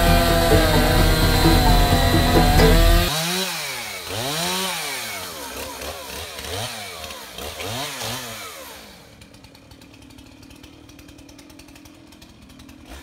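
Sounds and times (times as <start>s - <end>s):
background music: 0.0s - 3.1s
chainsaw revving: 0.0s - 13.0s.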